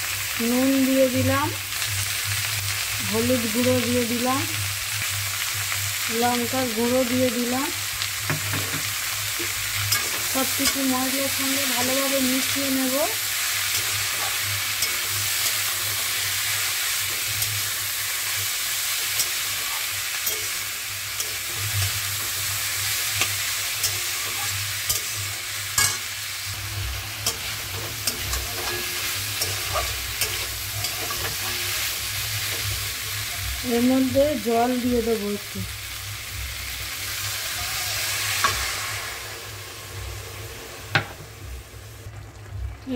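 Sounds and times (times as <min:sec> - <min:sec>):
vegetables sizzling in oil: 0:00.0 - 0:42.9
metal spatula scraping pan: 0:19.0 - 0:26.1, 0:26.9 - 0:33.5.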